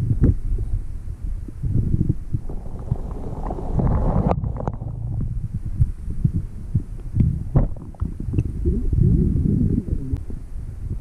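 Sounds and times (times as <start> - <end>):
low underwater thumps: 2.3 - 8.4
water moving against camera housing: 2.4 - 5.7.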